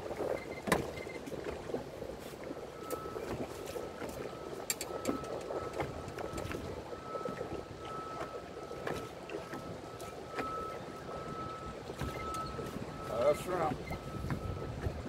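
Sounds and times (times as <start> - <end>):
water noise: 0.0 - 15.0
wind: 0.0 - 15.0.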